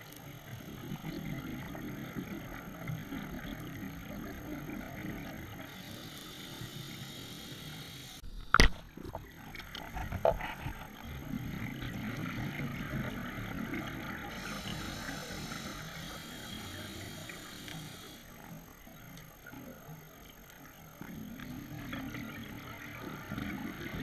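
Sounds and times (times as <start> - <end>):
scuba breathing through regulator: 5.6 - 8.2, 14.2 - 18.3.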